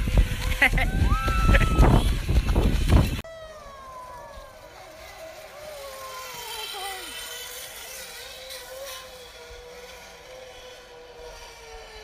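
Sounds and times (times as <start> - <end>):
pulley wheels whining on cable: 0.0 - 12.0.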